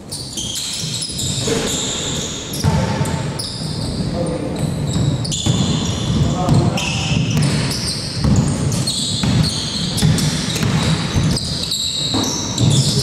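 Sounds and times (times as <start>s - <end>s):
sneakers squeaking on court: 0.0s - 13.0s
basketball bouncing on floor: 2.5s - 4.0s, 4.9s - 13.0s.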